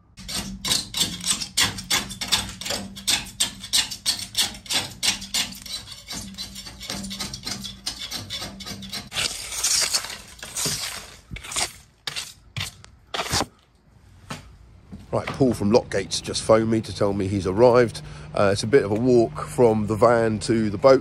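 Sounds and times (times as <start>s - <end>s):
hand tool scraping foam: 0.2s - 13.6s.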